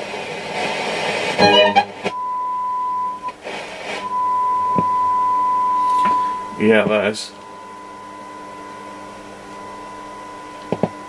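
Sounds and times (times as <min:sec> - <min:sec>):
radio tuning noise: 0:00.5 - 0:02.3, 0:03.2 - 0:05.1, 0:05.8 - 0:11.0
steady test tone: 0:01.4 - 0:03.4, 0:04.0 - 0:11.0.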